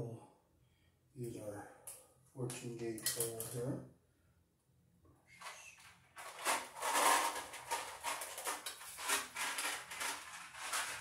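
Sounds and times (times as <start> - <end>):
clicks scrapes and rustles of tools: 5.4 - 11.0.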